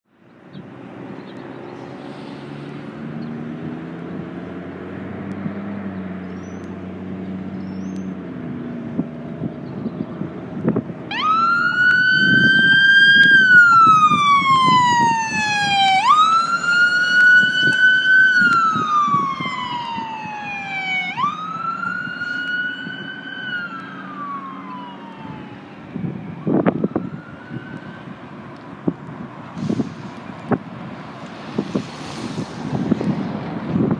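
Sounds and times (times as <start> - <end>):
road traffic: 0.0 - 33.9
emergency siren wailing: 11.0 - 30.2.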